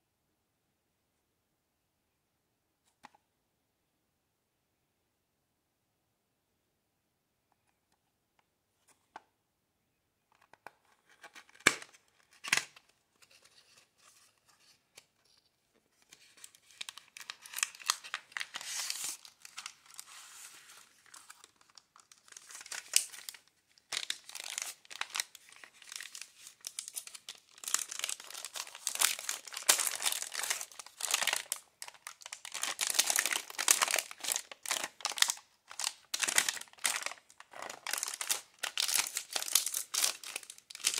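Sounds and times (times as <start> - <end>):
packaging crinkling and tearing: 11.1 - 14.3, 16.0 - 40.9.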